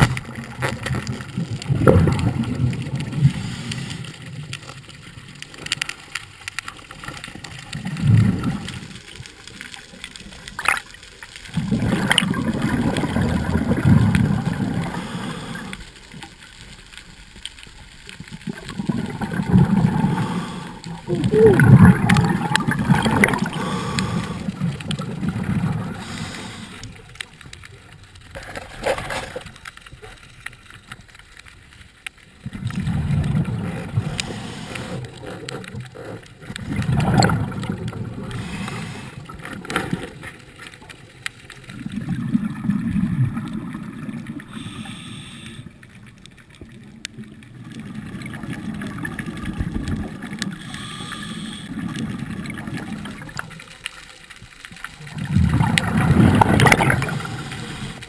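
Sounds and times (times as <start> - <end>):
underwater regulator bubbles rumbling: 0.0 - 5.7, 7.0 - 15.8, 18.2 - 29.4, 32.3 - 53.8, 54.7 - 58.0
faint clicks: 0.0 - 25.1, 25.7 - 42.2.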